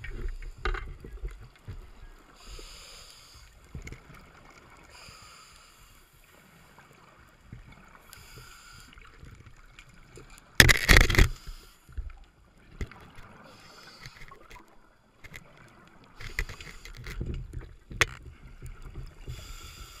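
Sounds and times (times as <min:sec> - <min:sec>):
muffled underwater water noise: 0:00.0 - 0:20.0.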